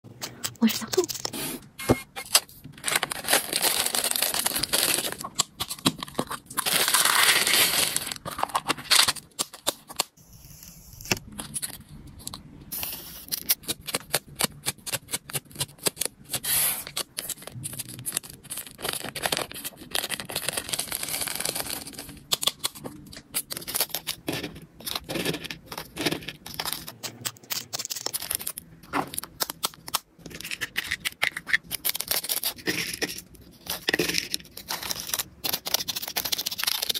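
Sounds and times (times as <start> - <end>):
paper labels peeled and torn: 24.8 - 36.9.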